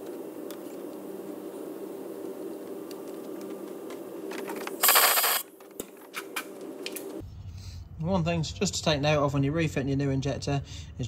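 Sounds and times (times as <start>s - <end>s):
steady low hum: 0.0s - 5.6s
air blow gun blast: 4.8s - 5.4s.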